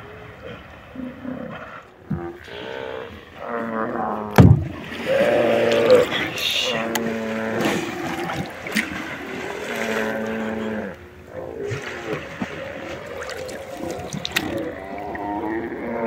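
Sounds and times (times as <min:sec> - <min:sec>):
water lapping at hull: 0:00.0 - 0:16.0
whale blowing: 0:00.0 - 0:16.0.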